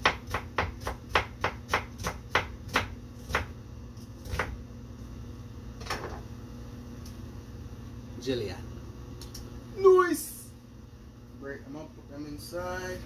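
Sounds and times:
knife chopping on wooden board: 0.0 - 3.5, 4.2 - 4.6.

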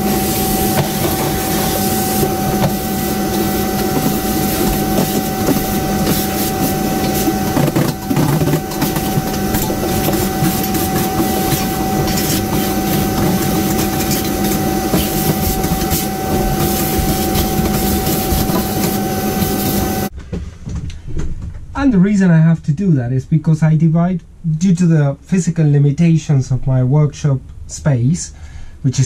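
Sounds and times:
vacuum cleaner whining: 0.0 - 20.1.

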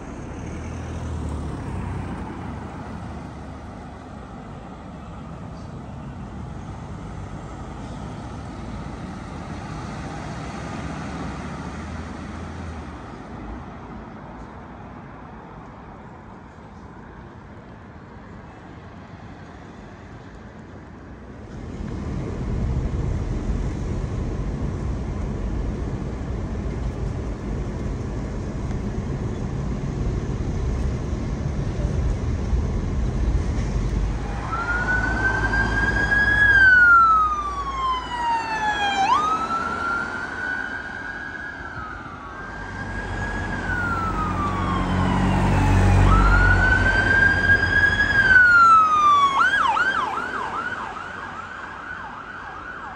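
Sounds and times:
traffic rumble: 0.0 - 52.9
ambulance siren: 34.1 - 52.9
fire engine siren wailing: 34.1 - 52.9.

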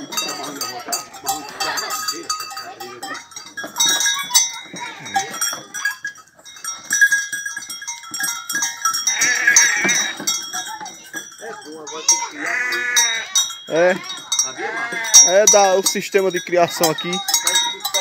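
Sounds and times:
goats and sheep jostling: 0.0 - 18.0
livestock bells clinking: 0.0 - 18.0
goat or sheep bleating: 9.1 - 10.4, 12.0 - 15.8.

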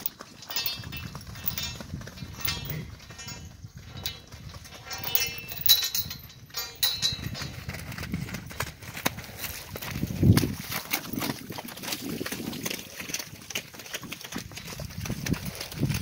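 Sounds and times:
horse hoofbeats and thuds: 0.0 - 16.0.

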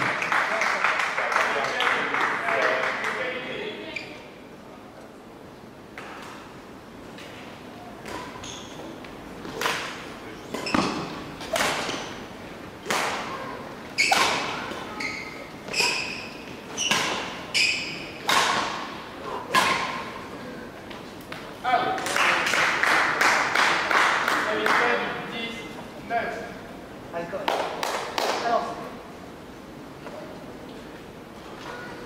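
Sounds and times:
racket hitting shuttlecock: 9.4 - 12.2, 12.8 - 13.4, 14.0 - 20.2.

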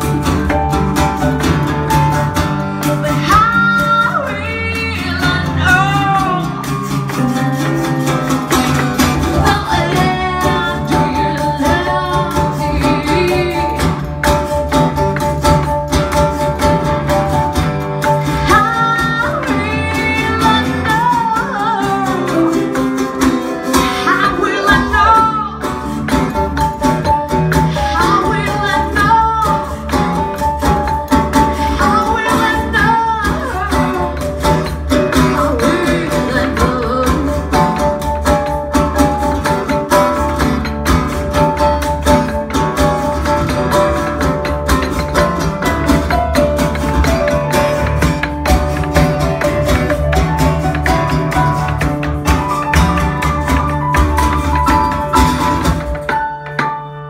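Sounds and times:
live band with guitars and keyboard: 0.0 - 57.0
woman singing: 2.8 - 6.9, 9.1 - 14.3, 18.2 - 25.9, 27.5 - 38.5.

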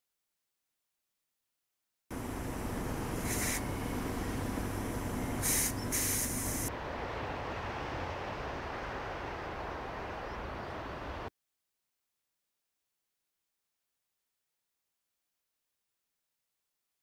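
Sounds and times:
outdoor rumbling hiss: 2.1 - 11.3.

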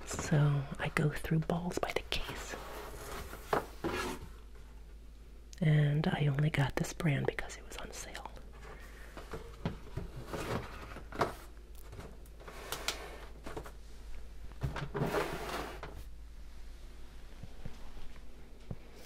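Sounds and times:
cardboard box scraping: 2.5 - 4.3, 14.9 - 15.9.

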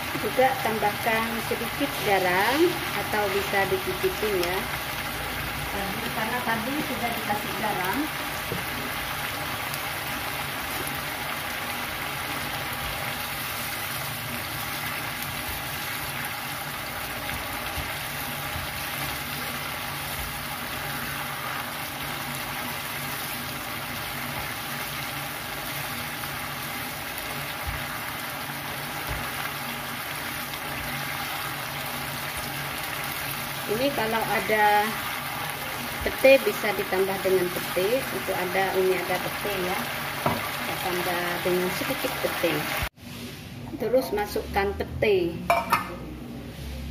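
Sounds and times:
shrimp sizzling in a frying pan: 0.0 - 43.4.

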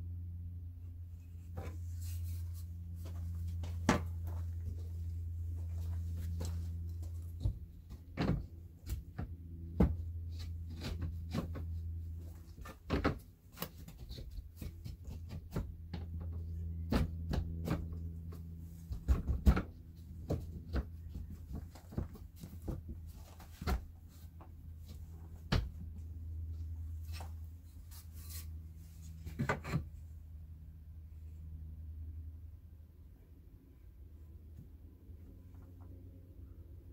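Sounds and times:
steady low hum: 0.0 - 36.9
board knocking and scraping: 29.2 - 29.9.

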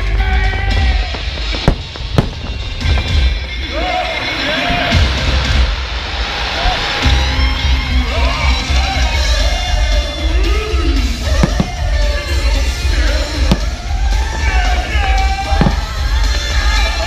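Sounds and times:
deep steady rumble: 0.0 - 3.8
firework bangs: 0.0 - 7.3, 11.0 - 17.0
music with singing over speakers: 7.0 - 17.0.

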